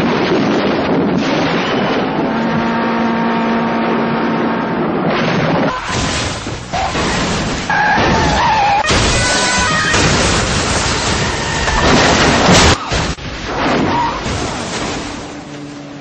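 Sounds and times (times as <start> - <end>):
loud crash rumble: 5.1 - 15.5
car crash: 5.1 - 15.6.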